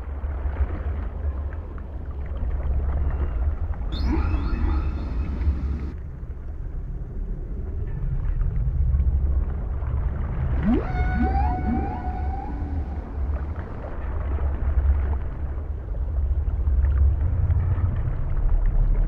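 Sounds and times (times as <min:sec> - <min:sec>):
deep underwater rumble: 0:00.0 - 0:19.0
whale-like calls: 0:03.0 - 0:06.0, 0:10.4 - 0:15.4.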